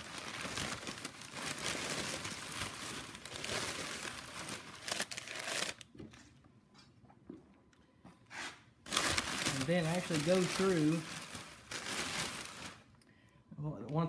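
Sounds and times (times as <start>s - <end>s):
packing paper crumpling: 0.0s - 5.9s, 8.8s - 13.0s.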